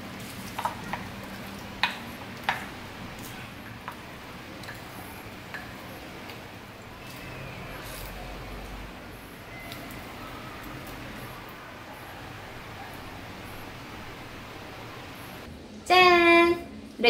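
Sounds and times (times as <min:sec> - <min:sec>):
steady low hiss: 0:10.2 - 0:15.8.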